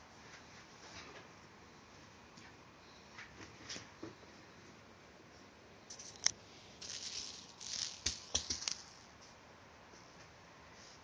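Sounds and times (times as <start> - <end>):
plastic ball rattling and scuffling: 5.9 - 9.1.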